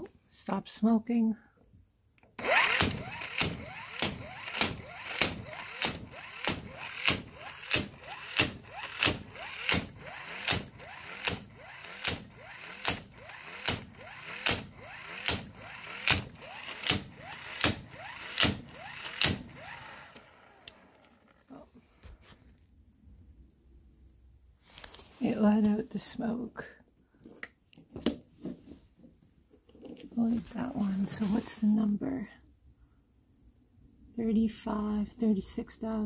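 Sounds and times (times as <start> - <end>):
impact wrench hammering: 2.4 - 20.2
motor whine: 2.4 - 21.4.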